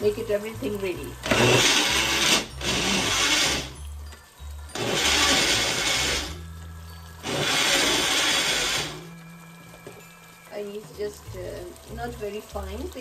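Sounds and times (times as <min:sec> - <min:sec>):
electric blender grinding: 0:01.2 - 0:03.9, 0:04.7 - 0:06.5, 0:07.2 - 0:09.2.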